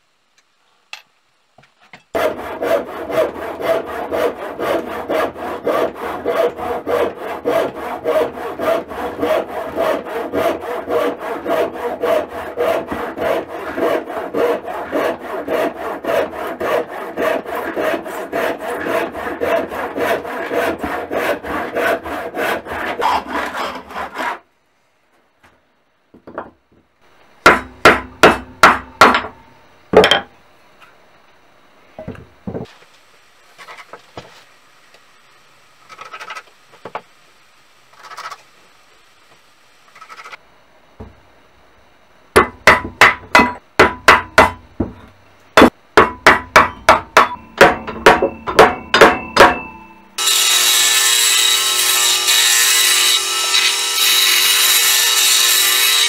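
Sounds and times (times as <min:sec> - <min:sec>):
handsaw cutting wood: 0:02.2 - 0:24.4, 0:50.2 - 0:56.0.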